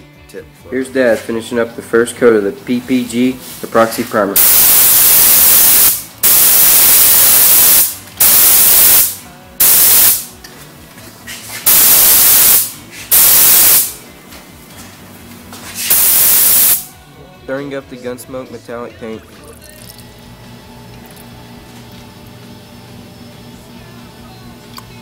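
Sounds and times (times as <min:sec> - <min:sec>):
spray gun hissing: 0:04.4 - 0:10.3, 0:11.6 - 0:14.0, 0:15.7 - 0:16.9.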